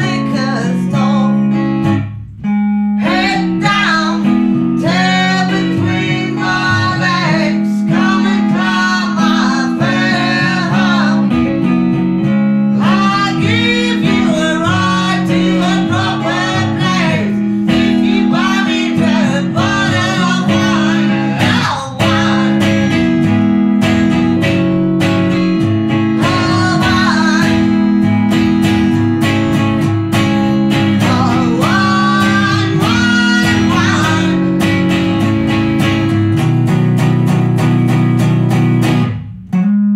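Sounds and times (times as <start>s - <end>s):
man and woman singing: 0.0s - 1.6s, 3.0s - 11.8s, 12.7s - 24.7s, 25.9s - 28.4s, 30.6s - 34.9s
strummed acoustic guitar: 0.0s - 39.9s.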